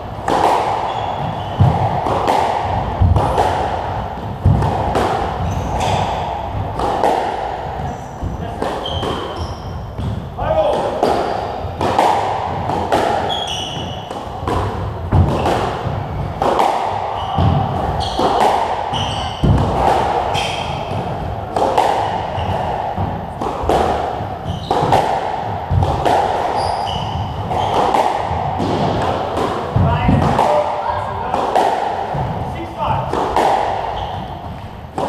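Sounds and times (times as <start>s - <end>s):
squash ball hitting rackets and walls: 0.0s - 35.0s
shoes squeaking on wooden floor: 0.8s - 1.8s, 5.4s - 6.3s, 7.8s - 10.3s, 13.2s - 14.1s, 17.2s - 19.6s, 20.3s - 20.9s, 24.4s - 25.0s, 26.5s - 27.9s, 33.9s - 34.4s.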